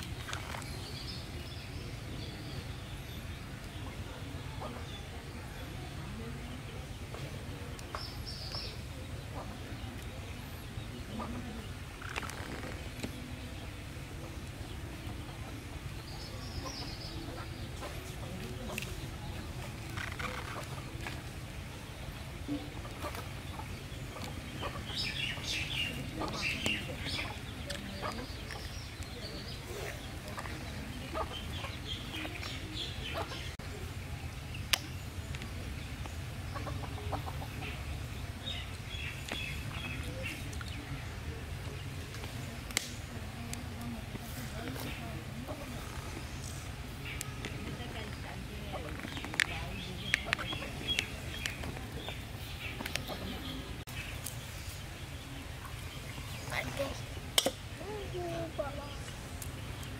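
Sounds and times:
small birds chirping: 0.0 - 59.9
chickens clucking: 3.6 - 5.4, 6.0 - 33.8, 34.7 - 59.9.

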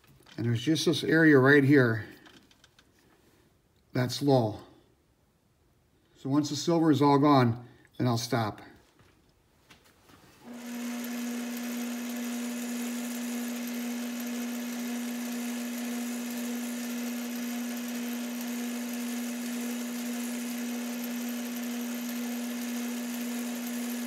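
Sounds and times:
metal lathe humming: 10.4 - 24.0.

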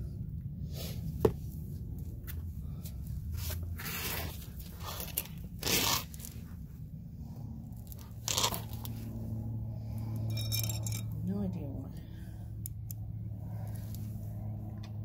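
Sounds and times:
low steady hum: 0.0 - 15.0
rustling scrapes: 3.3 - 6.7.

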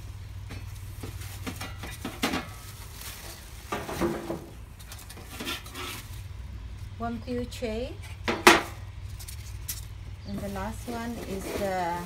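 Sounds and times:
metal pans clattering: 1.4 - 2.7, 3.7 - 6.0
plastic wrapping crinkling: 2.6 - 4.0.

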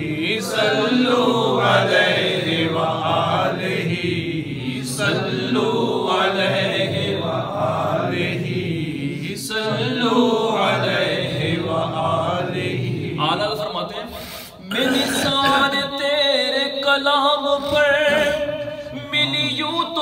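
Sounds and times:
man chanting into a microphone: 13.0 - 20.0.

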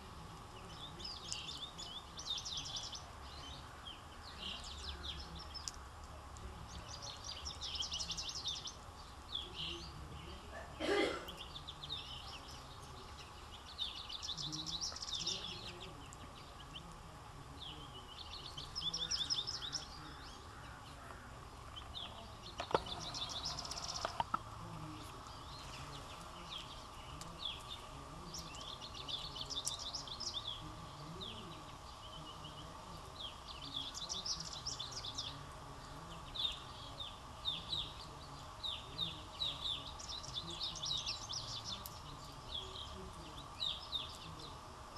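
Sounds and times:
faint steady hum: 0.0 - 44.9
songbirds singing: 0.0 - 44.9
sharp clicks: 22.5 - 24.4.

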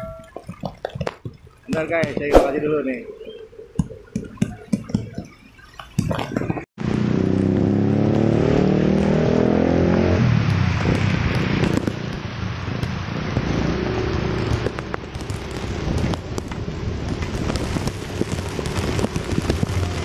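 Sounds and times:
wind and rain rushing: 0.4 - 20.0
motorcycle engine accelerating: 6.8 - 20.0.

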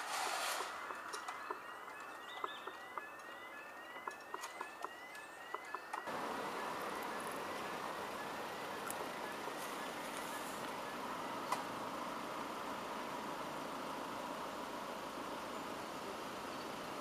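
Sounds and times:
road traffic rushing: 0.0 - 3.9, 4.6 - 17.0
level crossing alarm rising tone: 0.0 - 11.5.

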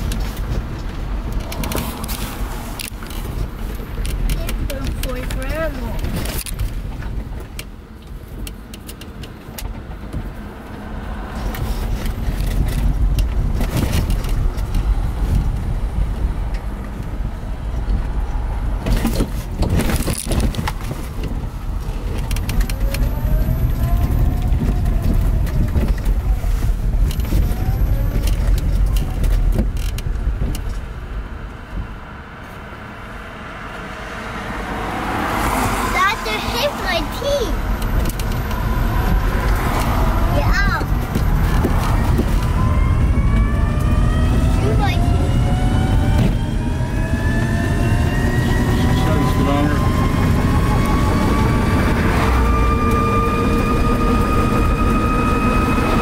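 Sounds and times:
knocks and rattles over bumps: 0.0 - 31.0, 36.0 - 44.0
tyres and suspension rumbling: 0.0 - 56.0.

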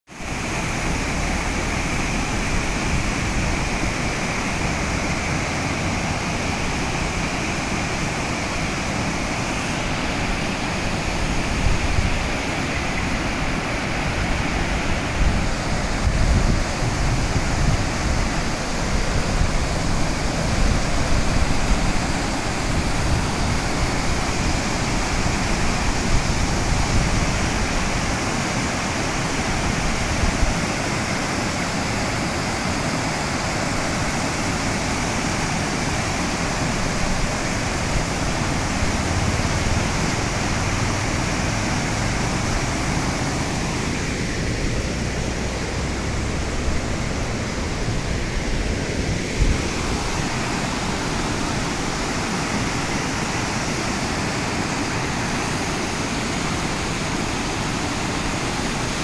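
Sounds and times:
waterfall roaring: 0.1 - 59.0.

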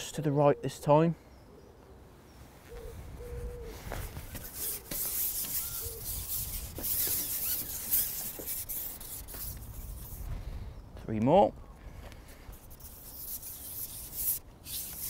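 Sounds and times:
fishing pole rubbing hiss: 4.0 - 10.3, 12.5 - 15.0.

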